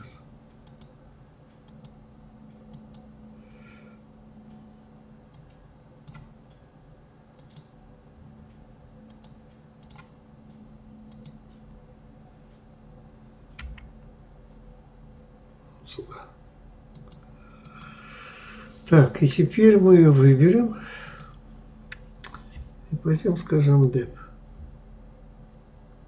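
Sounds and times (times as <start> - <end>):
faint steady hum: 0.0 - 26.0
computer mouse and keyboard clicks: 1.7 - 2.0, 9.1 - 10.2, 11.1 - 11.4, 13.5 - 13.9, 16.9 - 18.0.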